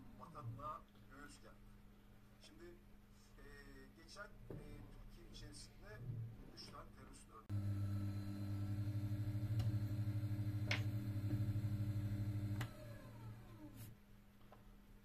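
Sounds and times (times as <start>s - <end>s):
lathe motor humming: 7.5s - 13.8s.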